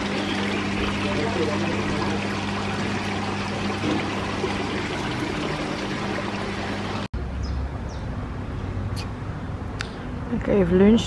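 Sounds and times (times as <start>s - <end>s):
pump hum: 0.0s - 7.1s
water splashing in tanks: 0.0s - 7.1s.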